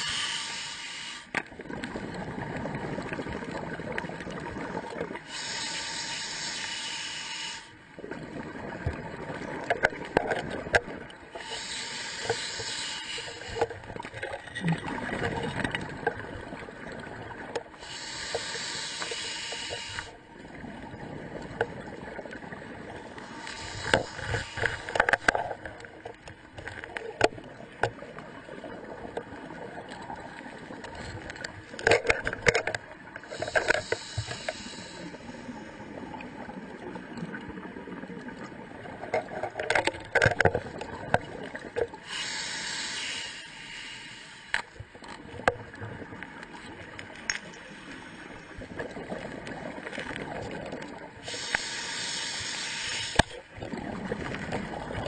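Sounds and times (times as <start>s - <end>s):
diver breathing in hiss: 0.0s - 1.3s, 5.2s - 7.8s, 11.4s - 13.6s, 17.8s - 20.2s, 23.2s - 25.3s, 33.2s - 35.9s, 42.0s - 44.7s, 47.6s - 48.6s, 51.2s - 53.4s
bubbles bursting: 14.6s - 17.5s, 53.5s - 55.0s.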